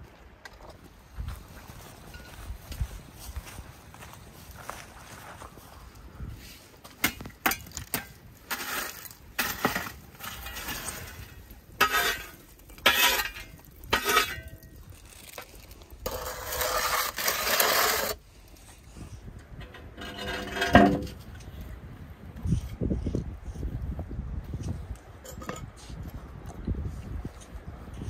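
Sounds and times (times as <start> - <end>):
coals clinking: 6.9 - 16.5
metal scraper scraping embers on stone: 7.0 - 18.2, 19.5 - 21.3.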